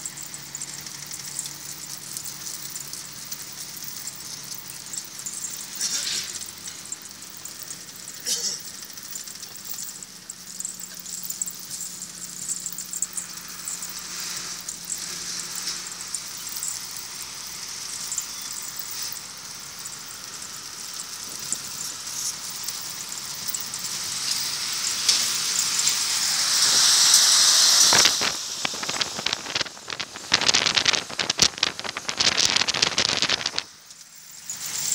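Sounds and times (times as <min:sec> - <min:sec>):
truck passing: 0:10.6 - 0:30.4
wind and road rush: 0:25.9 - 0:33.7.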